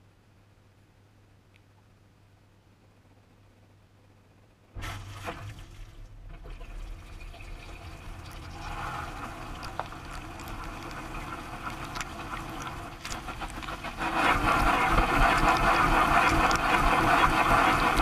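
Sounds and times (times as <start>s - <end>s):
dishwasher pump hum: 4.8s - 18.0s.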